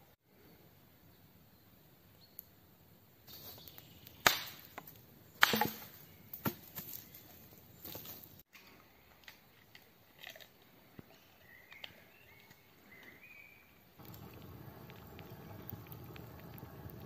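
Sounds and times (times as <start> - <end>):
dry branches cracking: 3.3 - 8.4
sticks snapping and rustling: 3.3 - 8.4.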